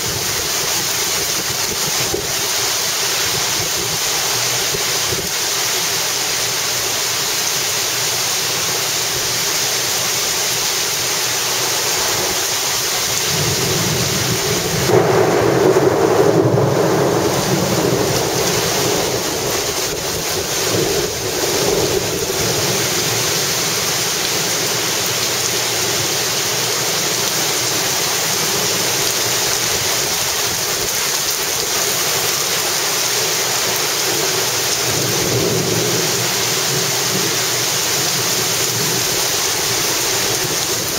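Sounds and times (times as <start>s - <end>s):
heavy rain pouring: 0.0s - 40.9s
low rumble of thunder: 13.1s - 22.8s.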